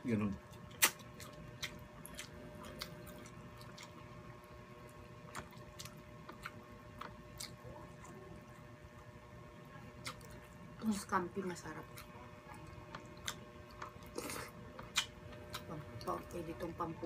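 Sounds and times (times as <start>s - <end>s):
chewing and lip smacks: 0.5s - 9.1s, 10.0s - 10.6s, 11.8s - 16.2s.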